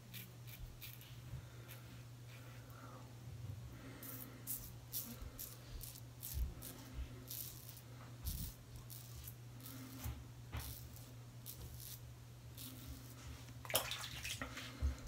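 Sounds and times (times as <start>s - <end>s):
razor scraping stubble: 0.0s - 2.0s, 4.0s - 13.5s
low steady hum: 0.0s - 15.0s.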